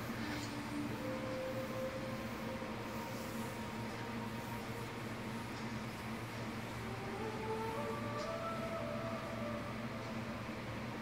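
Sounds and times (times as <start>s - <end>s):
film soundtrack low drone: 0.0s - 11.0s.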